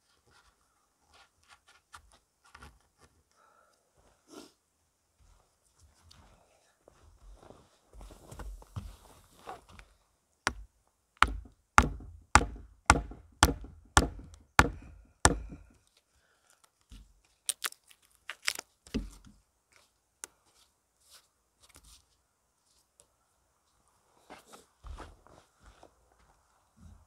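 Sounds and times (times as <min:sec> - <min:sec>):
mallet knocking wooden peg: 0:11.2 - 0:15.7.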